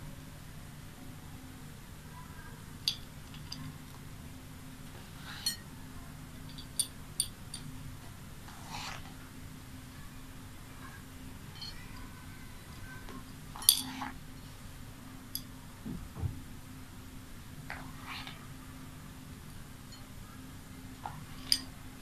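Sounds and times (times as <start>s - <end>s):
steady low hum: 0.0s - 22.0s
beads clinking on a plate: 5.3s - 5.7s, 6.5s - 7.7s, 13.5s - 14.2s.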